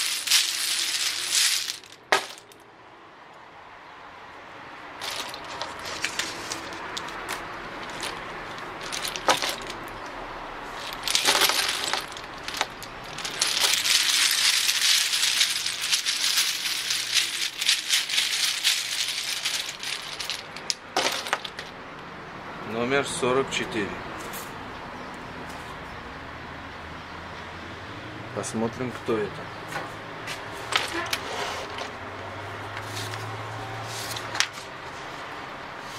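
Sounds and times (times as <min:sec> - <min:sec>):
tokens rattling in a cloth bag: 0:00.0 - 0:02.6, 0:05.0 - 0:10.0, 0:10.8 - 0:21.7.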